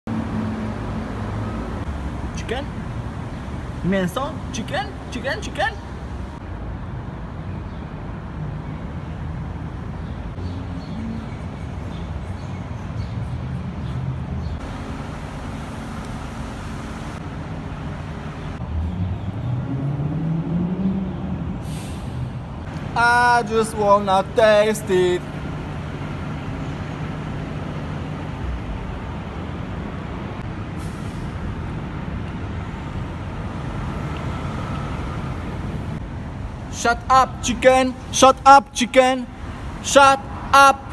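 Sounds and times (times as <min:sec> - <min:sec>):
road traffic rumble: 0:00.1 - 0:40.9.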